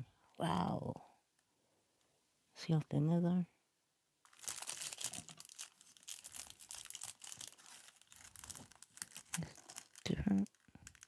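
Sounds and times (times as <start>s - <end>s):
plastic sleeves crinkling: 4.2s - 11.0s.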